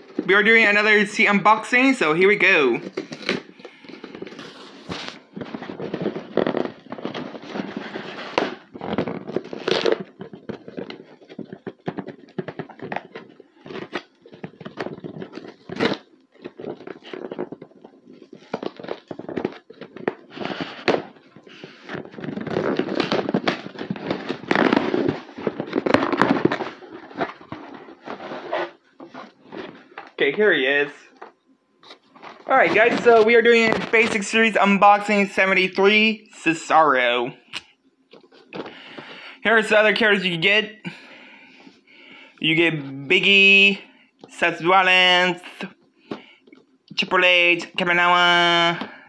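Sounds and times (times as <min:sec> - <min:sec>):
cardboard box being torn open: 0:08.3 - 0:10.2.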